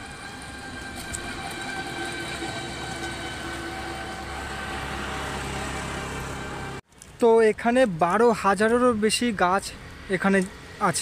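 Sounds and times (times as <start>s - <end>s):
mechanical drone with held tones: 0.0s - 6.8s
rushing noise: 0.0s - 6.8s.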